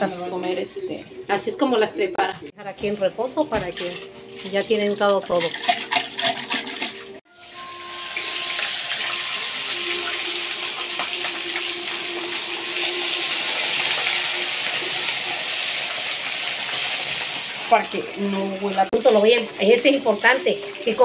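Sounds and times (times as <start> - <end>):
fish sizzling in hot oil: 7.3 - 21.0.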